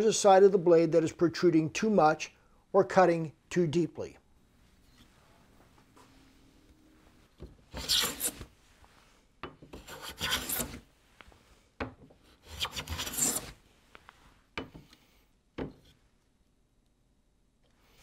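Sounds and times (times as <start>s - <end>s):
hand plane shaving wood: 9.8s - 10.8s, 12.4s - 13.6s.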